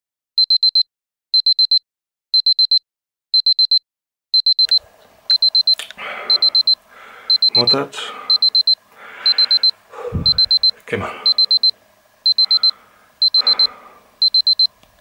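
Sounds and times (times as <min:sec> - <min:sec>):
electronic alarm beeping: 0:00.4 - 0:01.8, 0:02.4 - 0:02.8, 0:03.4 - 0:03.8, 0:04.4 - 0:14.8
clicks: 0:04.6 - 0:06.7.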